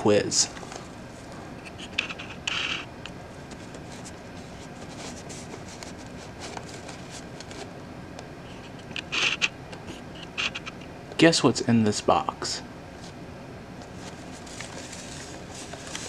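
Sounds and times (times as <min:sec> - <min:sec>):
cardboard scraping: 0:01.7 - 0:07.7, 0:13.9 - 0:16.0.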